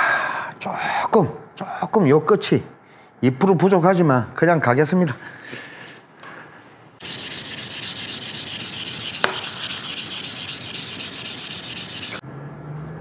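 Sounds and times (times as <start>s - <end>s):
sandpaper scratching on wood: 7.0s - 12.2s.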